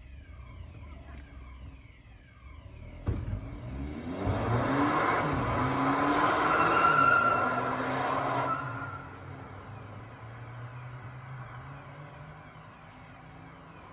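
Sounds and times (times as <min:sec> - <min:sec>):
tyre and road noise: 0:00.0 - 0:13.9
car engine revving: 0:02.8 - 0:12.7
sharp thump: 0:03.0 - 0:03.4.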